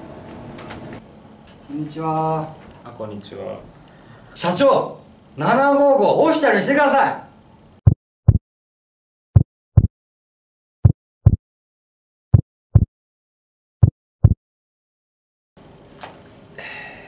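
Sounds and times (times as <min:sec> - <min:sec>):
heartbeat double thumps: 0:07.8 - 0:08.4, 0:09.4 - 0:09.9, 0:10.8 - 0:11.4, 0:12.3 - 0:12.9, 0:13.8 - 0:14.4.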